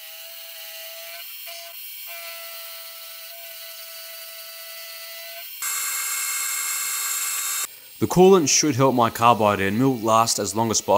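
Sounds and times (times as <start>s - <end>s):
milling machine spindle whine: 5.6s - 7.7s.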